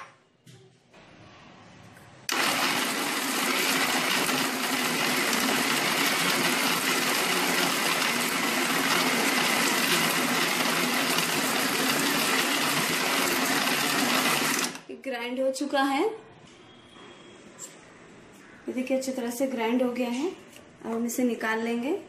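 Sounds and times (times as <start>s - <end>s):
mixer grinder running: 2.3s - 14.9s.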